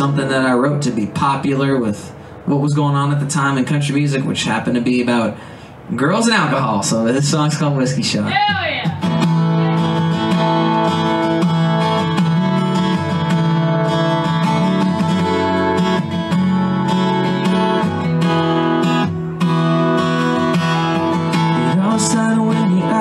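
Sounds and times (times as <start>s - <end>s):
acoustic guitar strummed chords: 0.0s - 3.5s, 8.4s - 23.0s.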